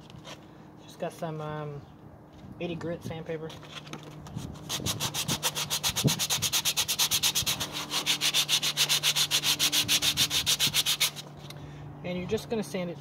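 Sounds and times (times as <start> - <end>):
sandpaper rubbing on filler: 4.4 - 11.2.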